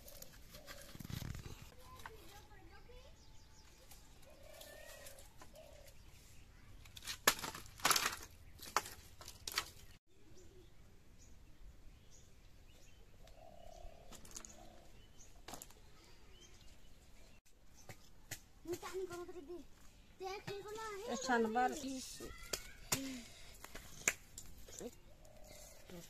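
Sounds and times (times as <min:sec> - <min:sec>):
firewood sticks clattering: 0:06.9 - 0:09.9.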